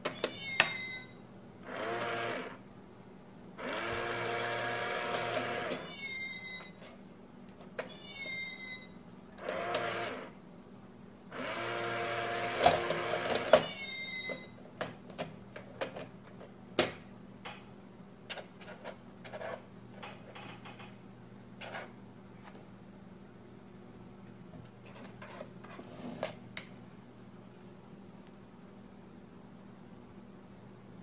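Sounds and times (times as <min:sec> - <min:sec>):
small motor whirring: 0:01.7 - 0:02.6, 0:03.6 - 0:05.9, 0:09.4 - 0:10.3, 0:11.4 - 0:13.5.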